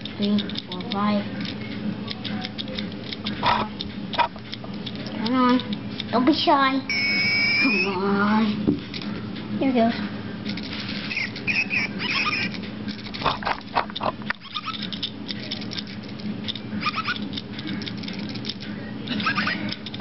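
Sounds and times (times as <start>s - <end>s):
toy robot clicking on tile: 0.0s - 6.1s, 10.5s - 20.0s
squeaky electronic chirps: 6.9s - 8.0s, 11.1s - 12.5s.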